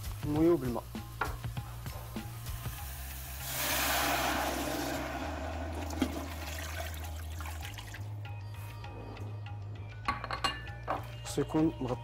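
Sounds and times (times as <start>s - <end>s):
water pouring into a metal pot: 2.6s - 8.1s.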